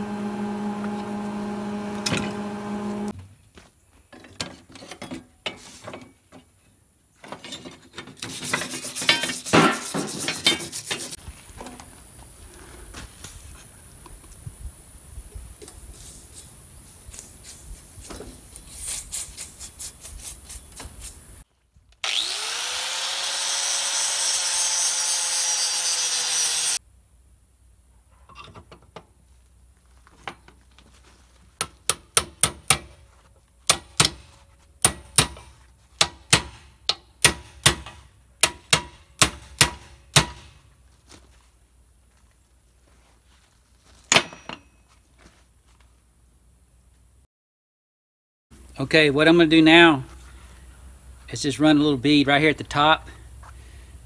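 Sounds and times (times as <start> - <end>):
small power tool running: 0.0 - 3.1, 22.0 - 26.8
wire brush scraping iron: 8.2 - 11.2.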